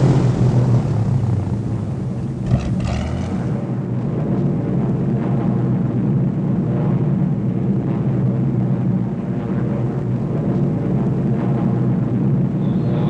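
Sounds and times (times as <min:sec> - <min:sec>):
propeller aircraft engine drone: 0:00.0 - 0:13.0.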